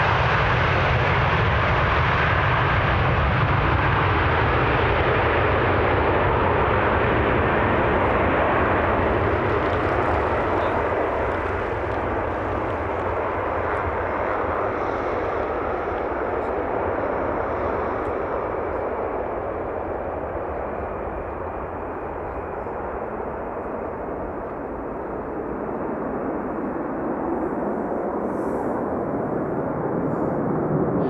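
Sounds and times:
jet engines roaring: 0.0s - 31.0s.

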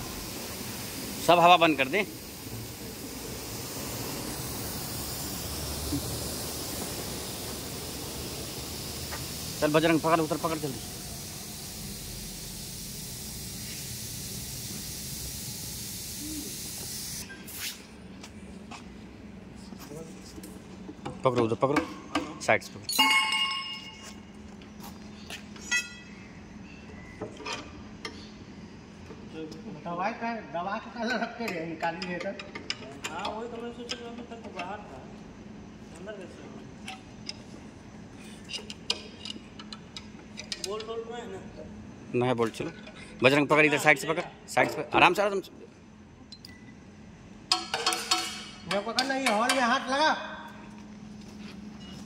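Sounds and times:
steady hiss: 0.0s - 18.0s
steady hum: 0.0s - 21.2s
ringing metal clink: 22.9s - 24.0s
metal tools clicking on engine: 31.0s - 34.8s, 36.8s - 37.6s, 38.4s - 41.1s, 47.5s - 49.8s.

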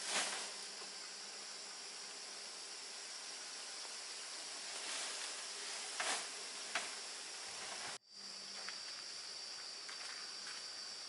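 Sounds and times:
insect chorus: 0.0s - 11.0s.

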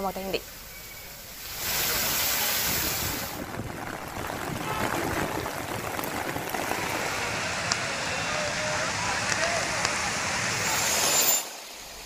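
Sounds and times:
water running and splashing: 1.3s - 8.1s.

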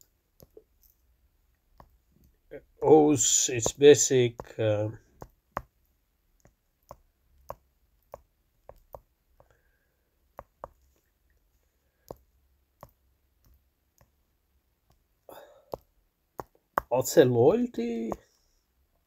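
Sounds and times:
stylus tapping on touchscreen: 1.7s - 2.0s, 3.6s - 5.8s, 6.4s - 9.6s, 10.3s - 11.1s, 12.0s - 14.2s.

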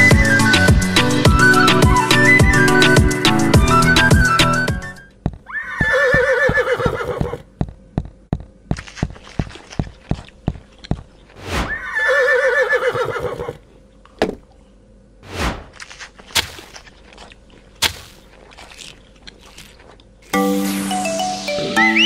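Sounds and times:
clip-clopping hoofbeats: 5.2s - 11.0s
horse whinnying: 5.5s - 7.4s, 11.7s - 13.6s.

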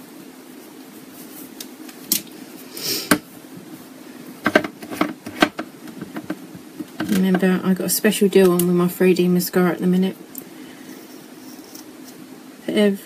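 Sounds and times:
short hiss: 2.7s - 3.1s
plastic containers clicking and rustling: 4.4s - 7.6s.

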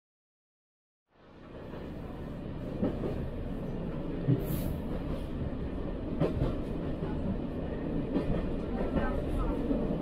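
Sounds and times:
train rumbling on track: 1.1s - 10.0s.

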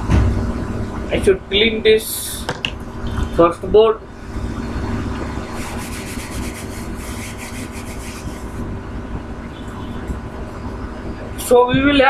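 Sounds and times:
low rumble: 2.8s - 7.1s
chalk rubbed off chalkboard: 5.5s - 8.6s.

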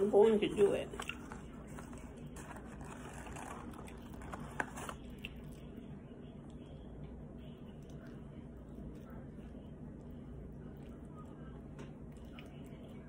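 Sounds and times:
wet chewing: 0.9s - 5.8s, 7.7s - 13.0s.

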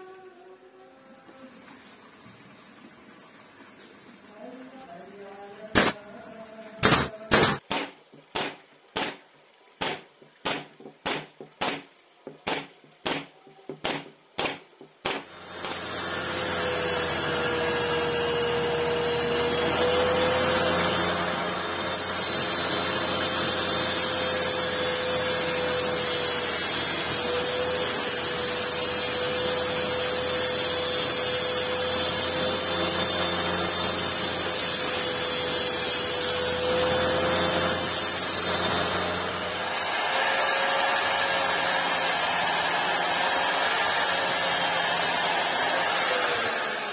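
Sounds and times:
pneumatic nailer firing: 5.8s - 6.0s, 6.8s - 9.2s, 9.8s - 16.2s.

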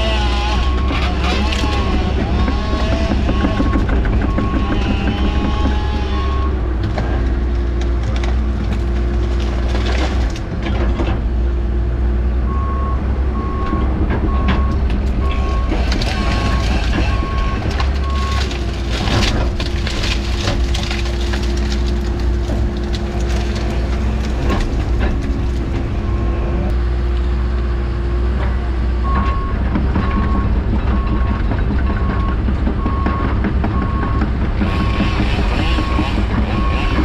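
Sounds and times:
excavator engine and hydraulics: 0.0s - 37.0s
beeping alarm: 2.3s - 5.4s, 12.5s - 18.5s, 34.8s - 37.0s
brush and wood breaking: 15.6s - 25.8s.

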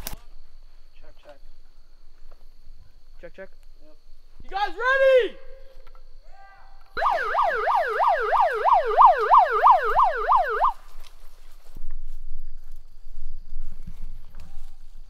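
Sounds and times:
electronic siren yelping: 7.0s - 10.8s.

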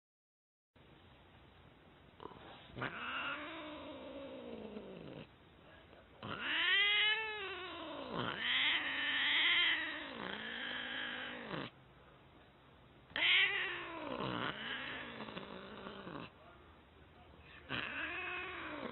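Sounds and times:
cat yowling: 2.8s - 4.6s, 6.2s - 11.6s, 13.2s - 16.1s, 17.7s - 18.9s.

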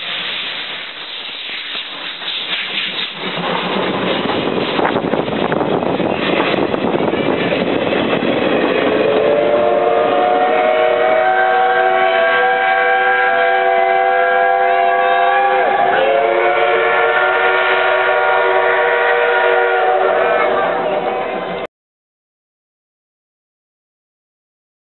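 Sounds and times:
steam locomotive whistle: 8.6s - 21.7s.

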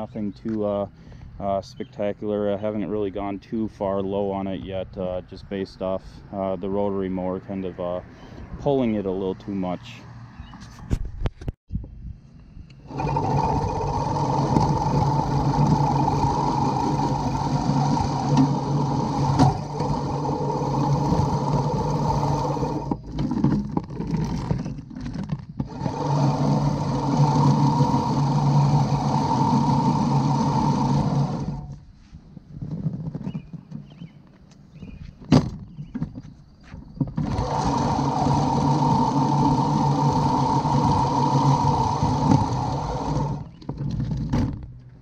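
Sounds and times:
reel mower blades whirring: 12.7s - 31.8s, 37.0s - 44.6s.

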